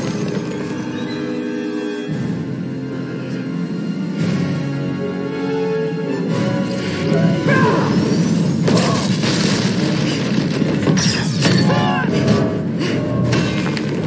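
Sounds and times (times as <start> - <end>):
orchestral score: 0.0 - 10.6
crashing impacts: 8.1 - 14.0.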